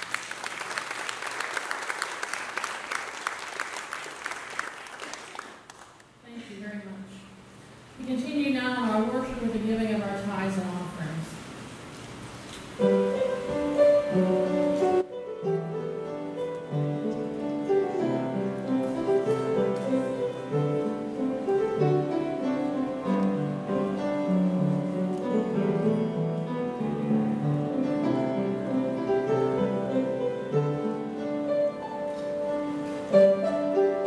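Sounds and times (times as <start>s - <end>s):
piano: 8.0s - 34.0s.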